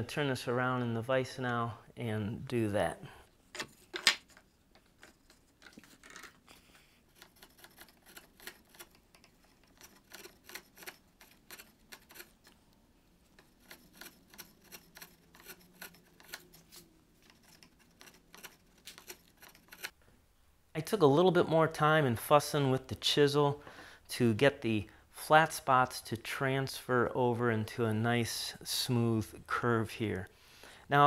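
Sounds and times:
chisel slicing wood: 0:07.1 - 0:12.5, 0:13.4 - 0:19.9.

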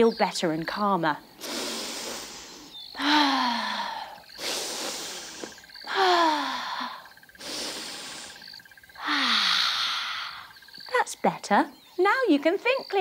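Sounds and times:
woman breathing deeply: 0:01.4 - 0:10.6
woman sighing: 0:03.0 - 0:08.3, 0:09.0 - 0:10.5.

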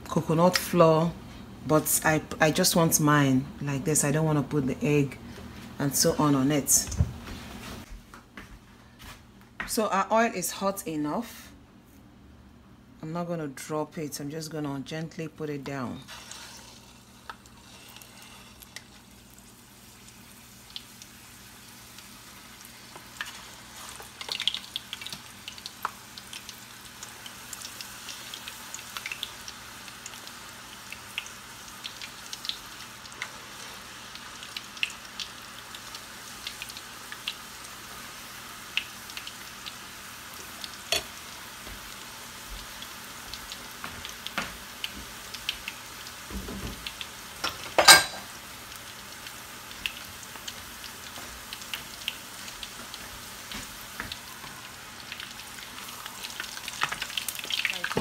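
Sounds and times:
food deep-frying in hot oil: 0:16.1 - 0:58.0.

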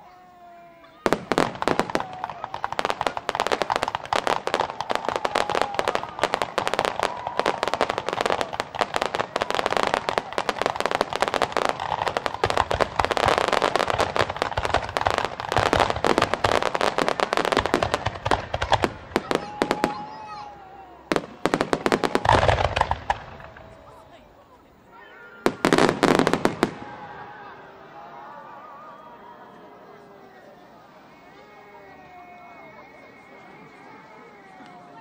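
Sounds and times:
fireworks bursting and crackling: 0:00.9 - 0:28.0.

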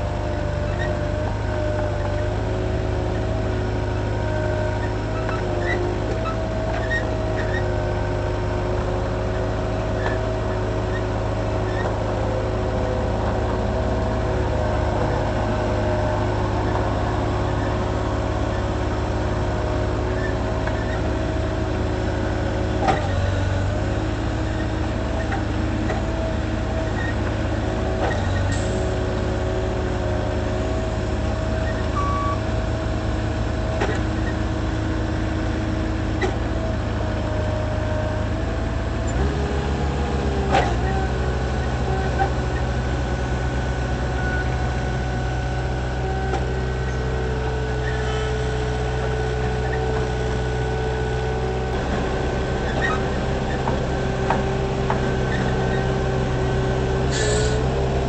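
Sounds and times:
forklift engine running: 0:00.0 - 0:58.0
steady whine: 0:49.2 - 0:58.0.

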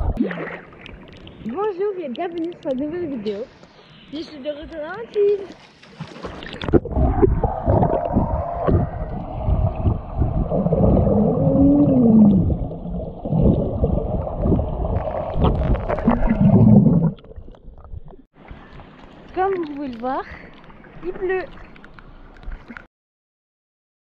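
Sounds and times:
muffled underwater rushing and bubbling: 0:00.0 - 0:01.6, 0:06.2 - 0:22.9.

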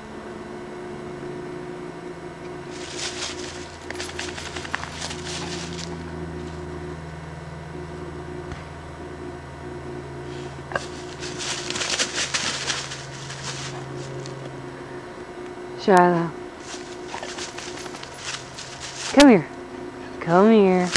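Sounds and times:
steady low hum: 0:00.0 - 0:20.9
footsteps in dry leaves: 0:02.6 - 0:06.6, 0:10.7 - 0:14.4, 0:16.6 - 0:19.5, 0:20.2 - 0:20.9.

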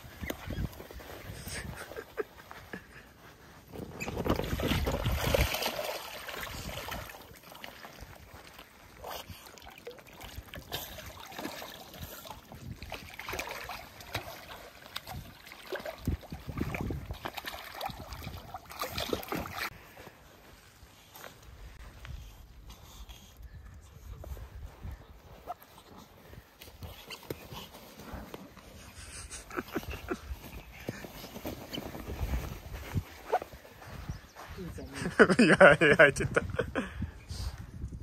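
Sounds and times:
otters splashing water: 0:03.8 - 0:19.8.

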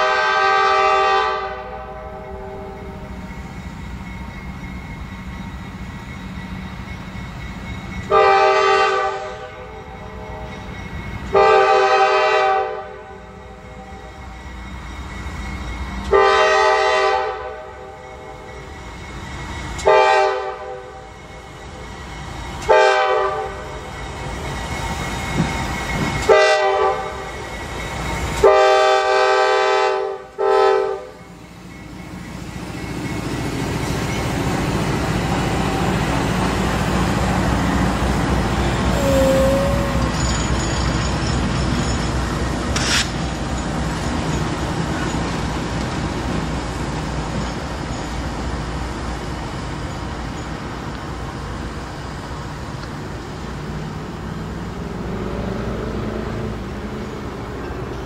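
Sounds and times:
locomotive air horn blasts: 0:00.0 - 0:02.5, 0:08.1 - 0:09.6, 0:11.3 - 0:13.0, 0:16.1 - 0:17.7, 0:19.9 - 0:20.8, 0:22.7 - 0:23.5, 0:26.2 - 0:27.1, 0:28.4 - 0:31.1, 0:38.7 - 0:40.3.

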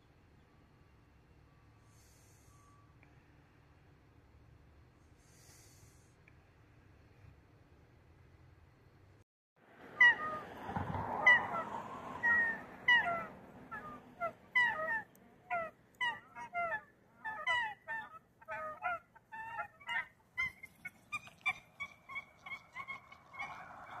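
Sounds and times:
geese honking: 0:10.0 - 0:10.5, 0:11.1 - 0:24.0.

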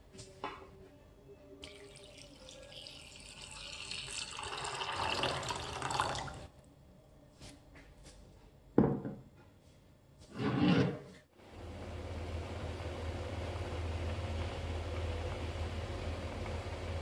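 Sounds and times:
water pouring into saucepan: 0:01.6 - 0:06.5.

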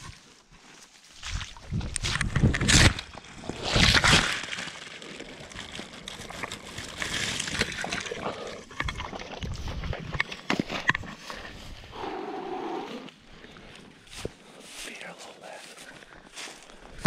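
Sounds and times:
dry grass rustling: 0:00.0 - 0:17.0
boots splashing through water: 0:01.1 - 0:02.1.

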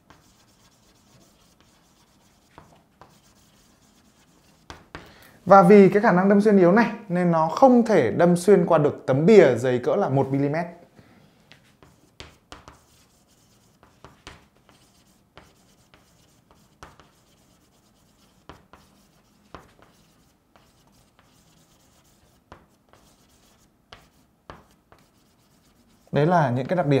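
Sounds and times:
chalk scratching on chalkboard: 0:00.0 - 0:05.0, 0:11.6 - 0:26.8.

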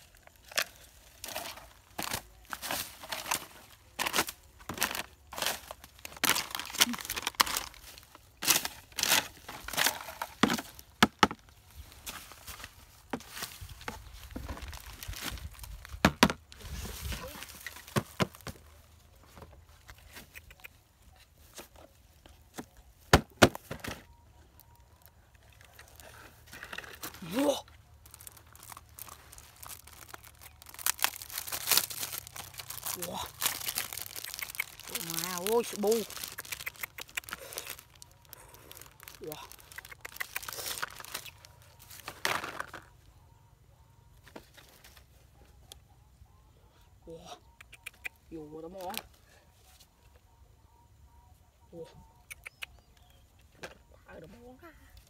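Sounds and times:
plastic bag crinkling: 0:00.0 - 0:10.9, 0:25.7 - 0:42.8.

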